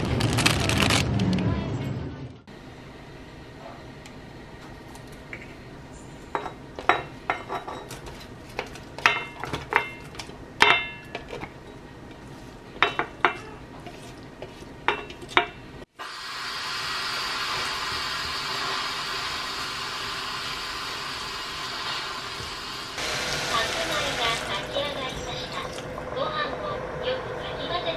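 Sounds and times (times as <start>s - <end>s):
food sizzling in oil: 16.0s - 26.7s.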